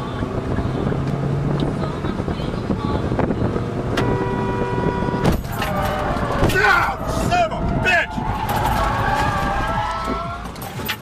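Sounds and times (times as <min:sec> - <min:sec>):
road and wind noise inside car: 0:00.0 - 0:11.0
car horn: 0:03.9 - 0:06.2.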